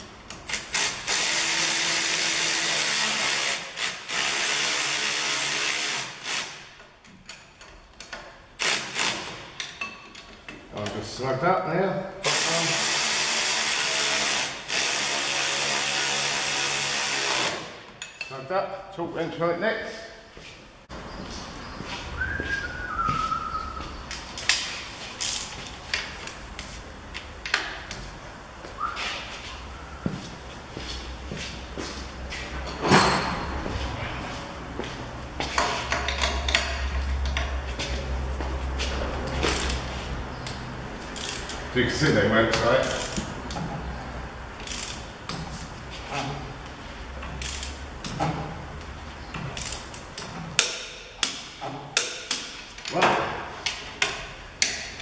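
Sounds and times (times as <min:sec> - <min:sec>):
short whistle-like tone: 0:22.2 - 0:23.8, 0:28.8 - 0:29.2
metal clicks of a torque wrench: 0:40.4 - 0:41.6, 0:42.8 - 0:43.6, 0:44.6 - 0:45.4, 0:47.2 - 0:48.2, 0:49.6 - 0:53.0
socket ratchet clicking: 0:40.5 - 0:41.6.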